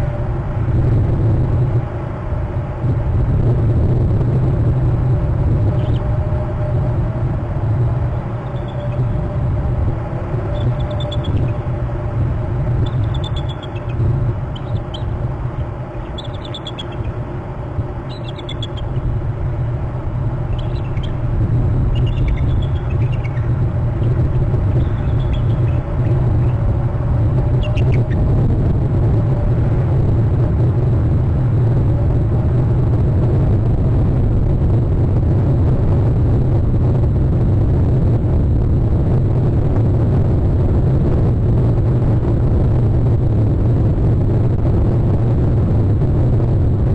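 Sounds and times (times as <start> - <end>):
steady low rumble: 0.0 - 46.9
eagle chirps: 8.4 - 9.2, 10.4 - 11.8, 12.6 - 17.2, 18.0 - 19.1, 20.4 - 26.6, 27.4 - 28.3.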